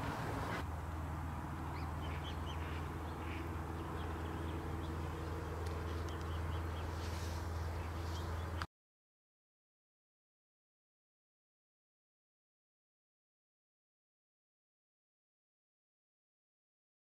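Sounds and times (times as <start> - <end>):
steady low hum: 0.0 - 8.7
waterbirds calling: 0.0 - 8.7.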